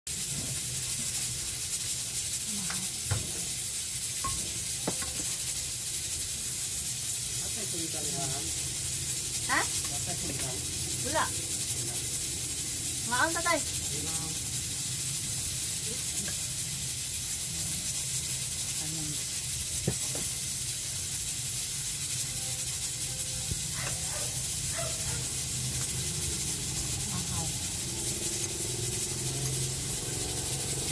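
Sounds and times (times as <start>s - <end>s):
steady hiss: 0.1s - 30.9s
tableware clinking: 4.2s - 5.5s.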